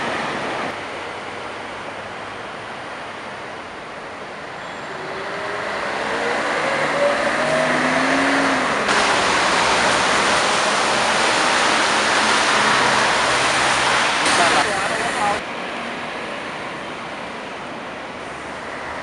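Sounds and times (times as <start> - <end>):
bus engine accelerating: 0.0 - 15.4
bus driving past: 4.4 - 15.4.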